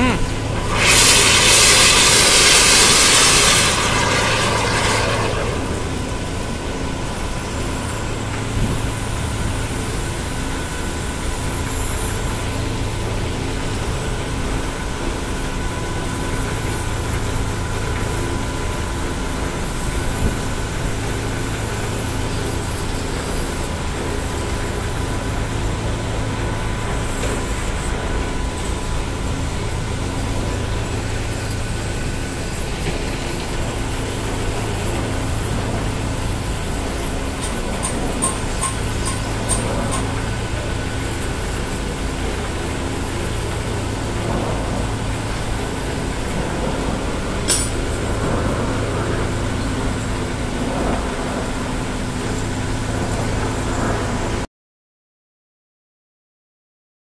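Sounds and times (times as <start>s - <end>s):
pump humming: 0.0s - 14.1s
high-pressure water jet hissing: 0.0s - 14.8s.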